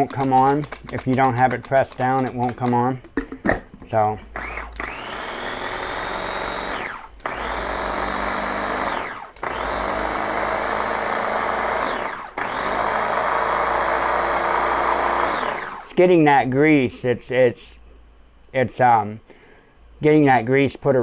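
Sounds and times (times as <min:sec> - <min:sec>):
food chopper motor whining: 0:04.3 - 0:15.9.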